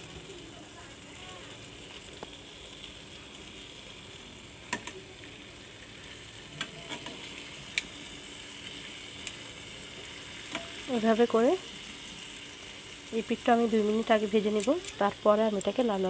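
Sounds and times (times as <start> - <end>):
chicken sizzling in a frying pan: 0.0 - 16.0
metal tongs clicking on pan: 10.5 - 10.8, 14.5 - 15.0, 15.6 - 15.8.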